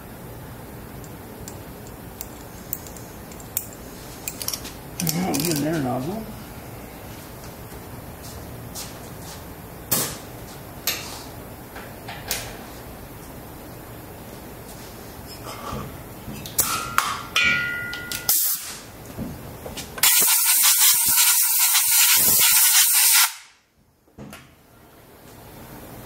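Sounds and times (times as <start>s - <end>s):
metallic clinks: 1.0s - 5.7s
air blow gun hissing: 20.0s - 23.4s.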